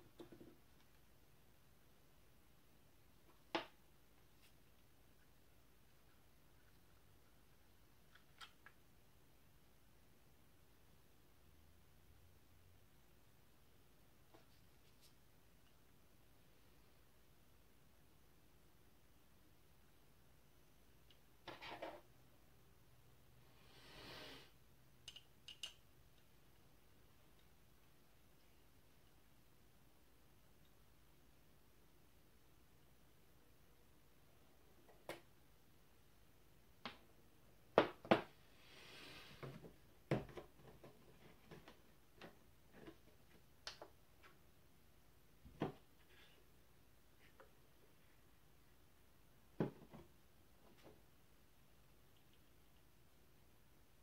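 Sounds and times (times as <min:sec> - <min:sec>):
soft rustle: 0:14.2 - 0:15.7.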